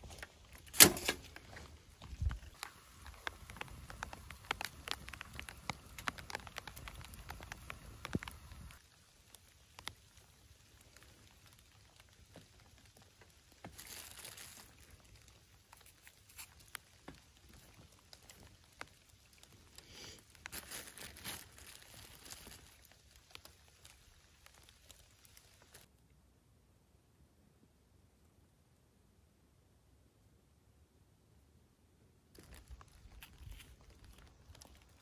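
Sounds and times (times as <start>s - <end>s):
rain pattering: 0.1s - 25.9s, 32.4s - 35.0s
plastic bag crinkling: 2.4s - 8.8s, 11.0s - 25.8s, 32.4s - 35.0s.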